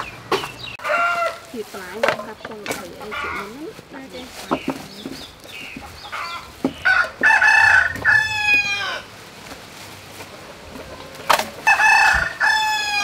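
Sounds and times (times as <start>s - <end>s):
rooster crowing: 0.8s - 1.5s, 6.1s - 9.1s, 11.6s - 13.0s
short rooster calls: 6.1s - 9.1s.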